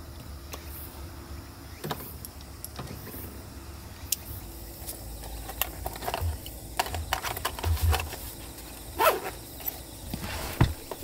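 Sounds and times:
gear clicks taps and rustles: 4.8 - 11.0.

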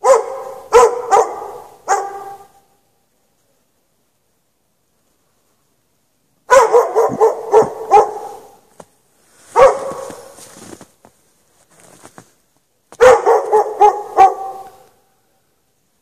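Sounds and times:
dog barking: 0.0 - 2.6, 6.5 - 8.7, 9.5 - 10.4, 13.0 - 15.0.

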